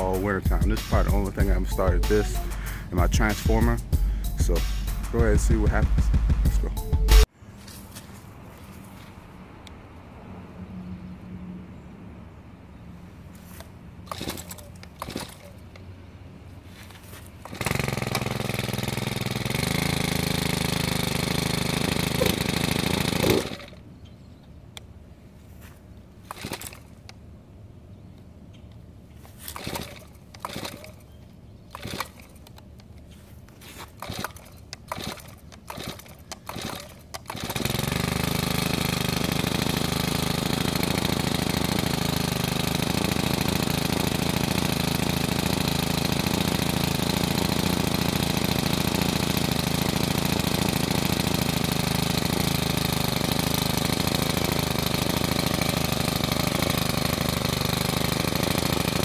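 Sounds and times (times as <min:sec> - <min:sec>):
string trimmer engine idling: 0:00.0 - 0:07.3, 0:13.5 - 0:15.8, 0:16.8 - 0:23.9, 0:26.1 - 0:27.2, 0:28.1 - 0:59.0
recoil starter pulls: 0:14.1 - 0:15.8, 0:17.4 - 0:23.8, 0:26.2 - 0:27.2, 0:29.3 - 0:59.0.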